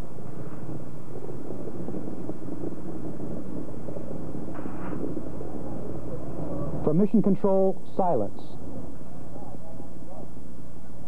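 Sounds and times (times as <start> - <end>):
distant rocket launch rumble: 0.0 - 7.8.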